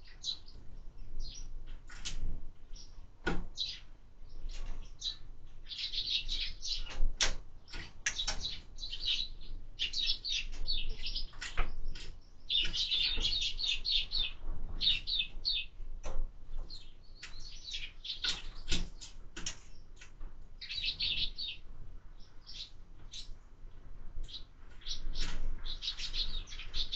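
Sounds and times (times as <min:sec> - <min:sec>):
sparrows chirping: 0:00.0 - 0:26.9
birds pecking knocks: 0:05.8 - 0:09.1, 0:09.8 - 0:21.4, 0:24.2 - 0:26.9.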